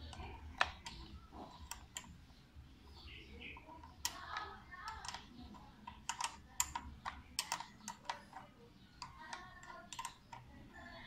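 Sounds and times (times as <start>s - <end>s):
hand tool clicking and tapping metal: 3.8s - 10.6s.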